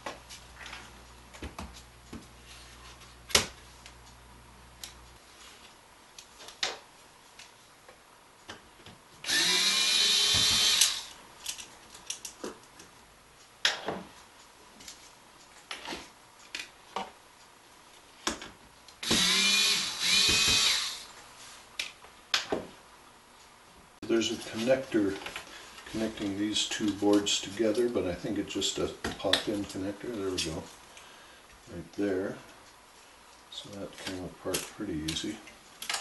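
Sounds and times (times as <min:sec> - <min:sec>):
electric screwdriver whining: 0:09.2 - 0:11.2, 0:19.0 - 0:21.1.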